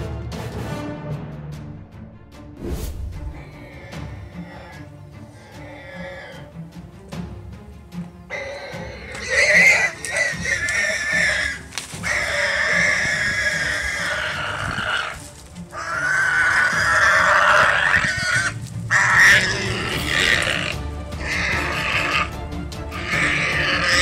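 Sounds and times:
warthog screaming: 3.6 - 6.5, 8.3 - 24.0.

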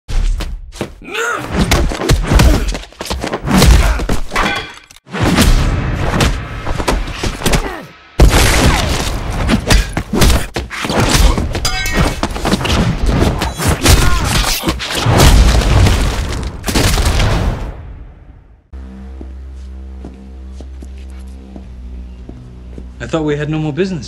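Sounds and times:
punches and body blows: 0.1 - 17.5.

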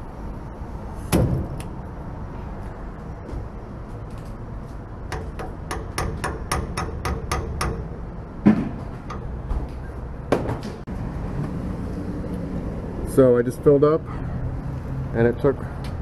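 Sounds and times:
loud clunks: 1.1 - 1.7, 8.4 - 9.7.

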